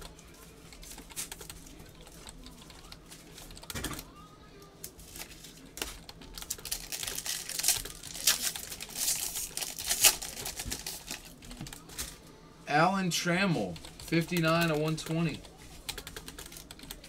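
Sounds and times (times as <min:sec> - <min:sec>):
foil wrapper crinkling: 0:05.0 - 0:11.4.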